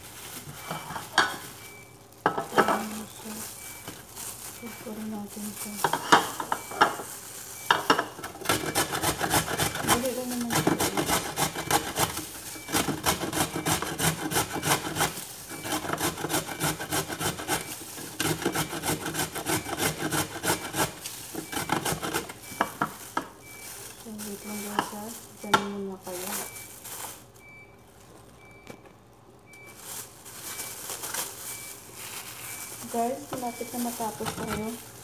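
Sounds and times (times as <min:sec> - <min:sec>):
carrot grating on metal grater: 0:08.4 - 0:22.4.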